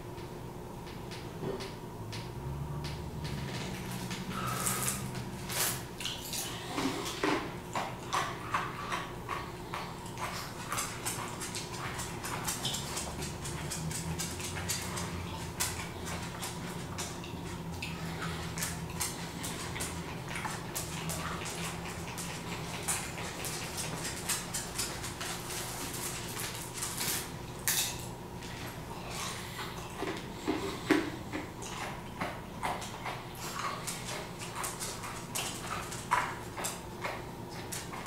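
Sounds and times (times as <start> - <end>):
steady low hum: 0.0 - 38.0
dog claws clicking and tapping: 7.7 - 27.8, 30.9 - 38.0.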